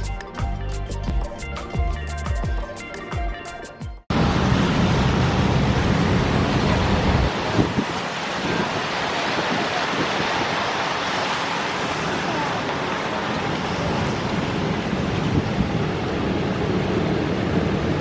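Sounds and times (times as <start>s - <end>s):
tyres rushing on wet road: 4.1s - 18.0s
fountain spray: 4.2s - 18.0s.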